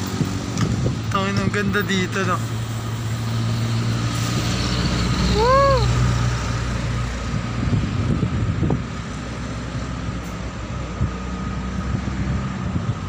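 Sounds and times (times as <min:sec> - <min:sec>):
wind buffeting microphone: 0:00.0 - 0:01.8, 0:05.4 - 0:13.0
road traffic rumble: 0:00.0 - 0:13.0.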